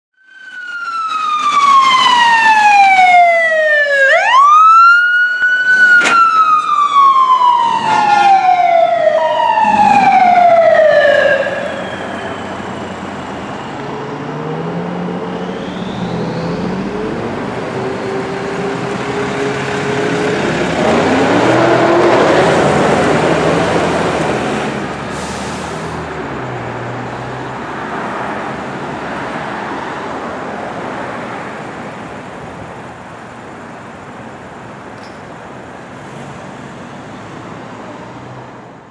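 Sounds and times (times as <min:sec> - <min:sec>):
wailing electronic sirens: 0:00.2 - 0:25.0
heavy vehicle engines: 0:00.4 - 0:38.9.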